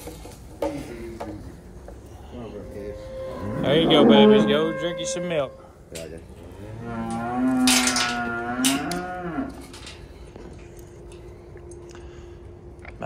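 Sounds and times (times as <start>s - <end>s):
faint steady hum: 0.0s - 13.0s
cow mooing: 2.4s - 5.8s, 6.4s - 10.0s.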